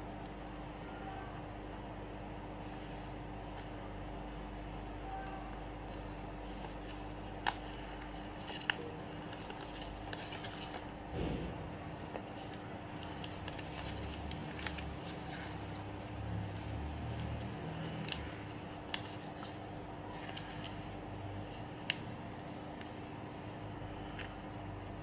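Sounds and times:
steady low hum: 0.0s - 25.0s
crisp paper fold ticks: 5.9s - 10.9s, 12.1s - 15.7s, 16.4s - 22.1s
paper rustling: 5.9s - 25.0s.

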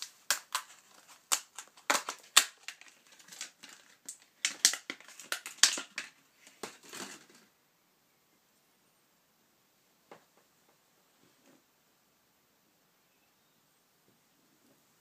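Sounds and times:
plastic packaging clicks and crinkles: 0.0s - 7.5s.

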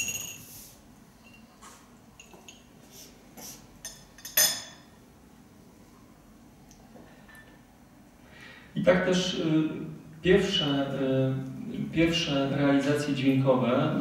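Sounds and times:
ringing clink: 0.0s - 0.5s.

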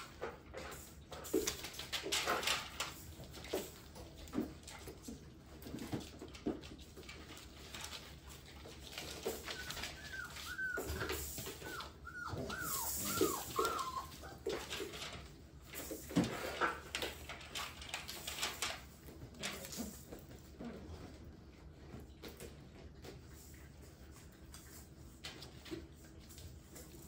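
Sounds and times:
paws scuffling on hard floor: 0.0s - 27.0s
puppies yelping: 9.1s - 14.8s.

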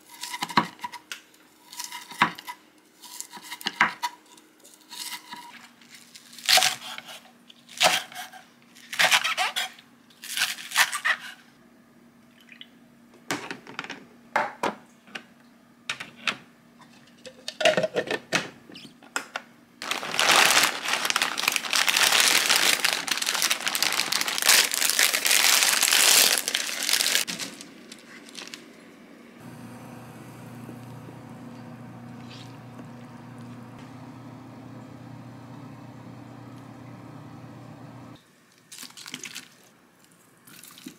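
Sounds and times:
kitchen clatters and knocks: 13.2s - 14.8s, 15.9s - 18.6s
boiling water hum: 29.2s - 38.2s.

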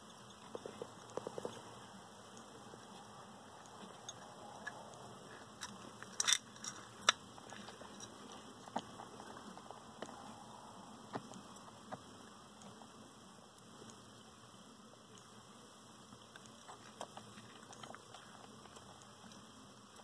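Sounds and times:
crab shells clicking and tapping: 0.0s - 1.8s, 3.6s - 10.2s.

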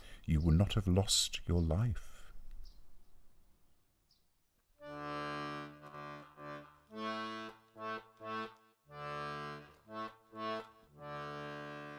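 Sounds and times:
accordion playing chords: 4.8s - 11.9s.

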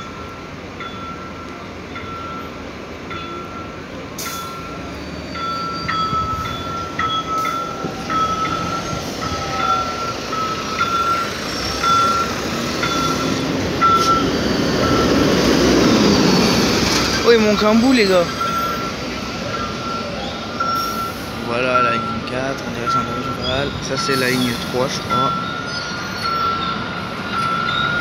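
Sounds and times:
bus traffic passing: 0.0s - 28.0s
short electronic beeps: 19.6s - 26.8s.

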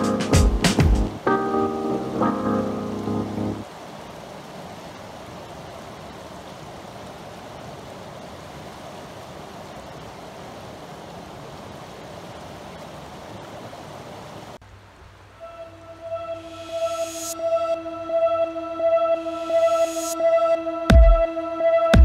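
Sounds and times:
creek water rushing over rocks: 0.0s - 15.3s.

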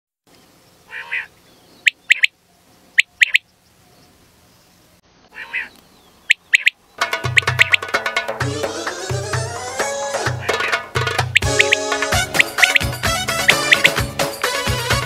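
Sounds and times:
quail calling: 0.9s - 3.5s, 5.3s - 8.0s, 8.6s - 14.2s.

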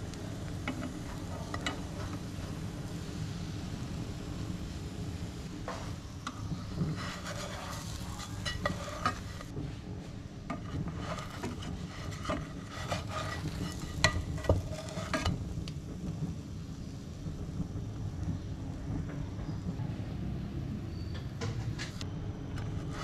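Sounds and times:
steady low hum: 0.0s - 21.0s
faint sizzle: 0.0s - 23.0s
spatula scraping and knocking pan: 0.6s - 2.4s, 5.6s - 9.5s, 10.4s - 16.1s.

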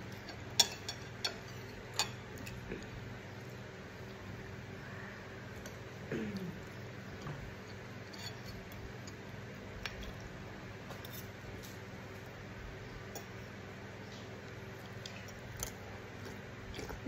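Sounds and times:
faint steady hum: 0.0s - 17.0s
cutlery scraping a ceramic plate: 8.0s - 8.8s.

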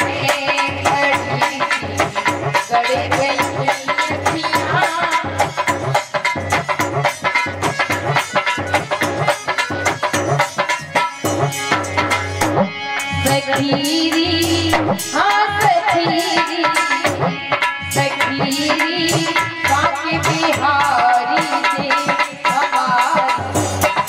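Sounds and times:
woman singing: 0.0s - 5.7s, 13.1s - 23.6s
hand drums playing: 0.0s - 24.0s.

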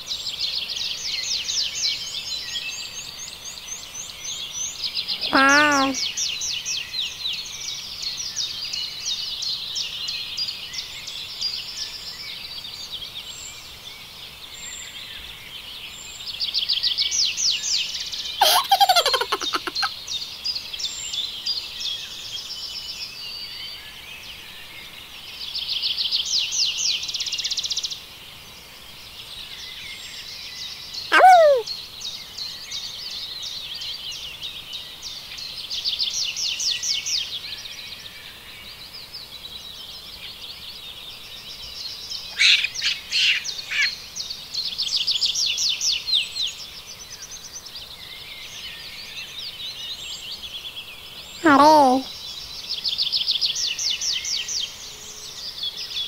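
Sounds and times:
birds chirping and trilling: 5.1s - 6.0s.

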